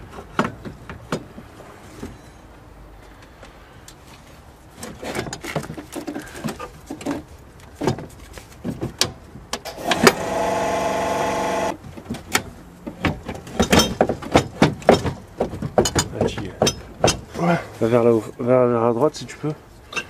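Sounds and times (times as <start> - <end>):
small motor whining: 9.7 - 11.8.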